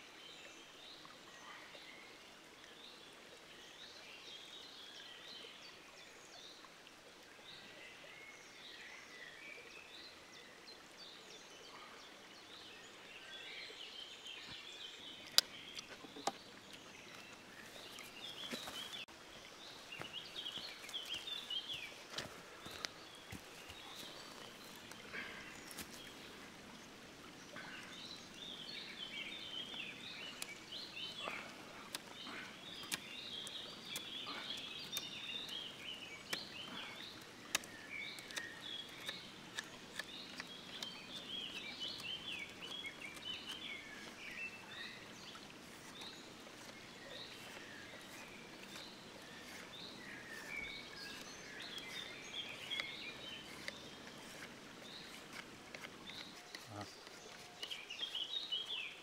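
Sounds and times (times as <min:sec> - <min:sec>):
birds singing: 0:07.4 - 0:59.0.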